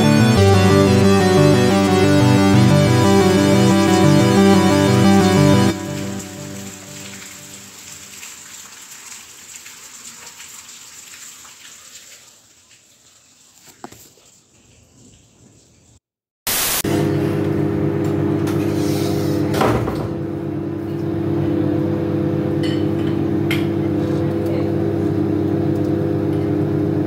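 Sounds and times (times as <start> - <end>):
rain: 5.9 - 15.5
microwave oven humming: 16.9 - 27.0.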